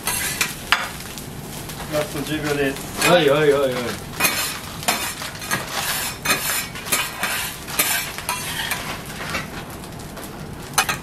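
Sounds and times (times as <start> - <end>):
metal spatulas scraping on griddle: 0.0 - 1.0, 3.0 - 9.5, 10.8 - 11.0
rice sizzling: 0.0 - 11.0.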